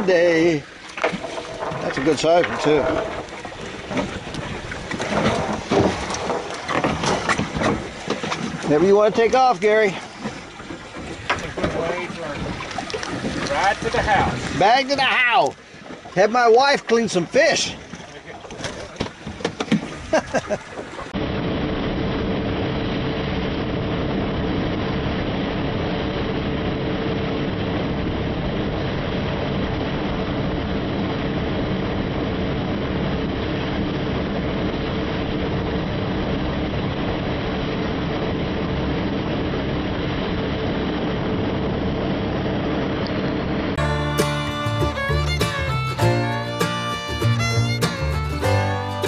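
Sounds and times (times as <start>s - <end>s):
rushing wind: 0.0s - 16.5s, 19.1s - 43.8s
outboard motors droning: 0.0s - 21.2s
water rushing past boat: 0.0s - 49.0s.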